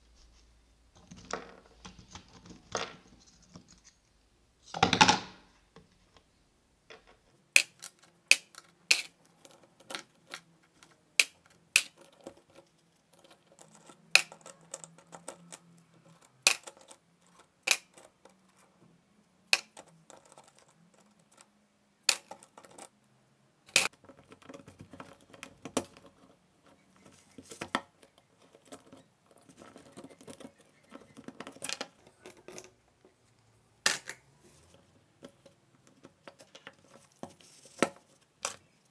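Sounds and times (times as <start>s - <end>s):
soft scraping and rustling: 26.0s - 33.5s, 34.4s - 38.9s.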